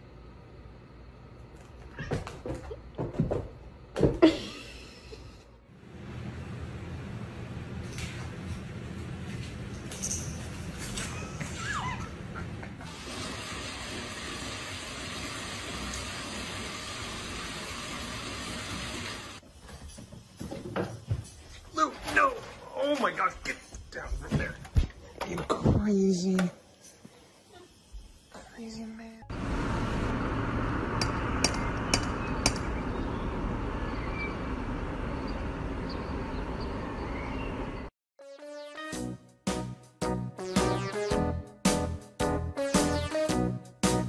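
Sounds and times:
water running from tap: 12.9 - 19.4
outdoor street noise: 29.3 - 37.9.

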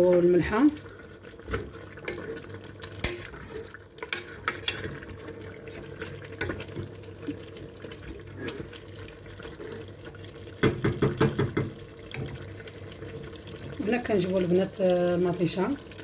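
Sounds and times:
meat sizzling in a pot: 0.0 - 16.0
spatula scraping a pot: 2.0 - 6.6.

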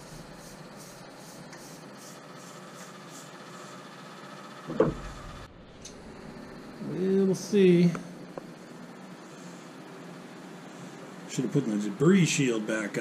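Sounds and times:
steady hiss: 6.3 - 13.0.

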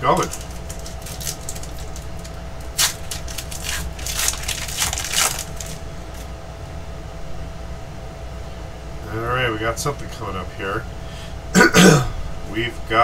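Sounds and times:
wrapper crinkling and tearing: 0.0 - 6.3.

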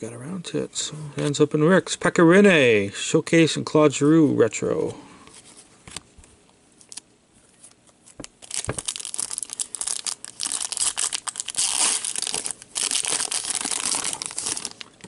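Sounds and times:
foil wrapper crinkling and tearing: 8.1 - 15.0.

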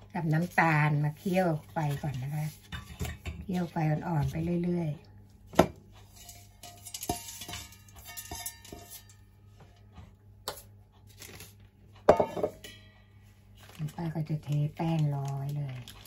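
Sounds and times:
spoon and bowl clinking on pot: 6.0 - 9.3, 12.1 - 13.0.

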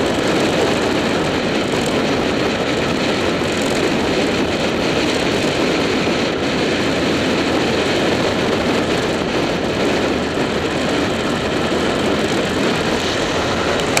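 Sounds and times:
motorcycle engine running: 0.0 - 14.0
wind and road noise: 0.0 - 14.0.

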